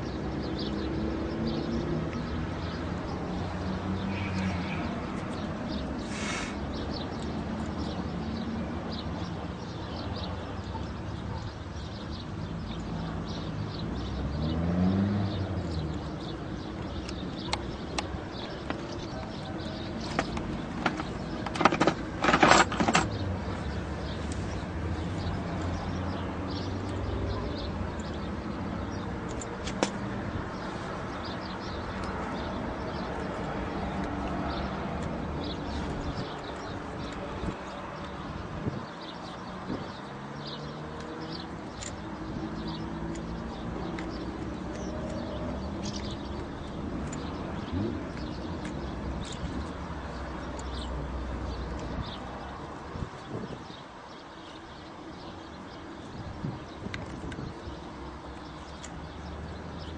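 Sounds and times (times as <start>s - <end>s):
outdoor background noise: 0.0s - 59.9s
small birds chirping: 0.0s - 59.9s
metal connector clicks and scrapes: 19.9s - 23.2s.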